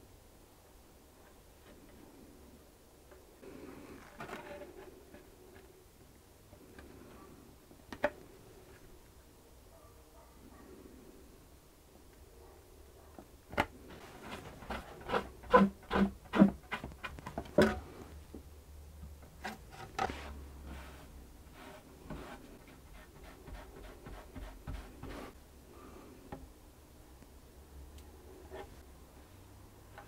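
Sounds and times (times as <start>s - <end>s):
sponge rubbing wood: 19.5s - 25.4s.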